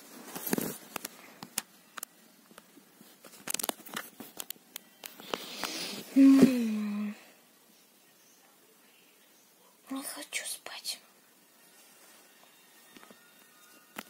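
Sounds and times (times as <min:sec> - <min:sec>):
bedding rustling: 0:00.0 - 0:01.2.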